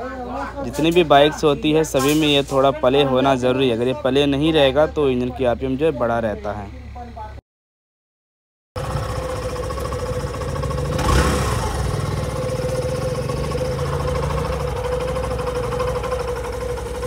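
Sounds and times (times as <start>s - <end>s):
motorcycle engine idling: 8.8s - 17.0s.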